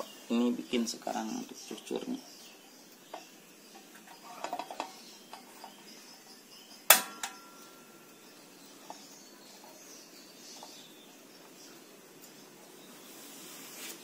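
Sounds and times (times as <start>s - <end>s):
metallic clank of kitchenware: 6.9s - 7.7s.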